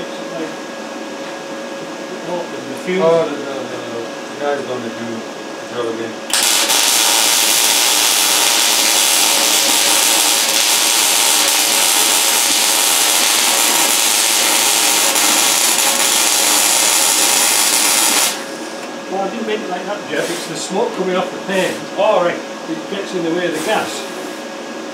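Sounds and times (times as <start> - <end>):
arc welding hiss: 6.3 - 18.8, 23.5 - 24.4.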